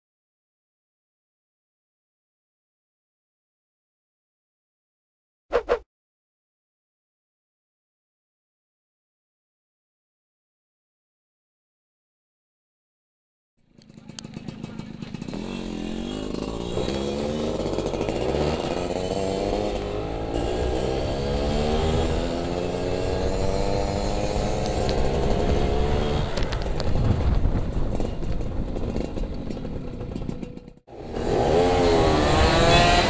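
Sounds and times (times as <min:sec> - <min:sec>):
two-stroke engine accelerating: 0:13.6 - 0:33.0.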